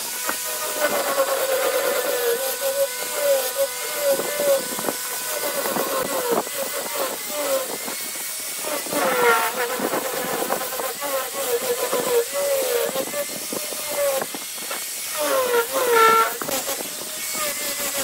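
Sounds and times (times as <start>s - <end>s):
angle grinder motor whine: 0.0s - 18.0s
sanding hiss: 0.0s - 18.0s.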